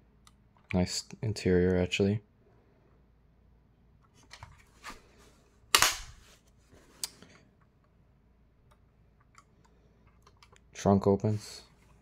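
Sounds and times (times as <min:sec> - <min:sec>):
sharp snap of model part: 0:05.7 - 0:06.1.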